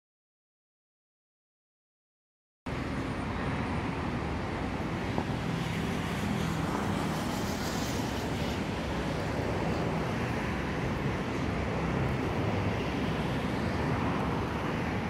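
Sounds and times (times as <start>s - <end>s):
road traffic rumble: 2.7s - 15.0s.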